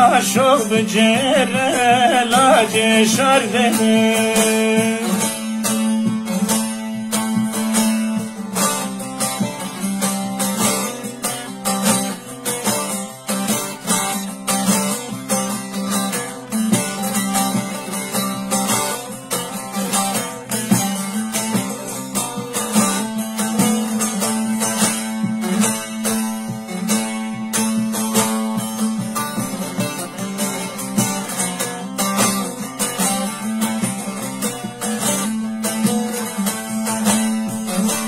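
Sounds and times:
long-necked lute plucked quickly: 0.0 - 38.0.

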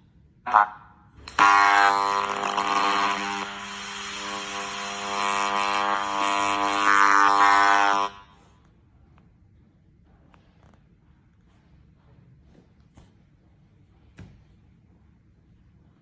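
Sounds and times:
loud buzzing drone with hiss: 0.5 - 8.3.

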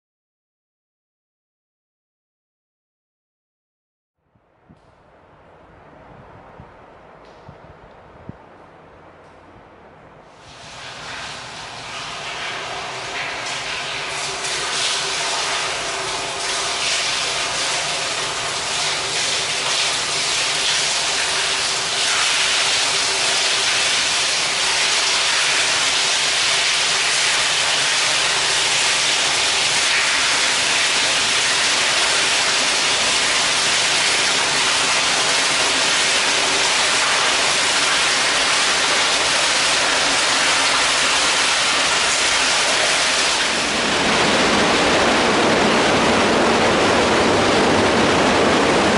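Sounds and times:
water rushing through sewer: 10.2 - 48.9
water jet splashing: 10.4 - 48.9.

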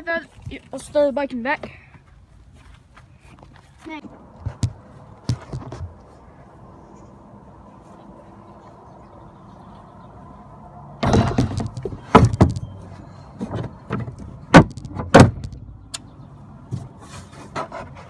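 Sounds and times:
bicycle frame banging on bed: 11.0 - 12.7
bicycle clattering in vehicle bed: 11.0 - 15.7.

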